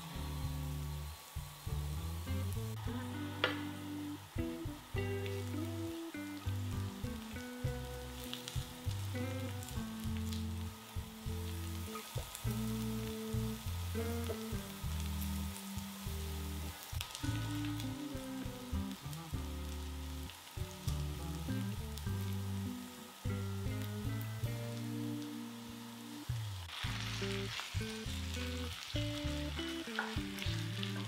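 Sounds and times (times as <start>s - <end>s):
background music with bass line: 0.0s - 31.0s
onion sizzling in a frying pan: 0.0s - 31.0s.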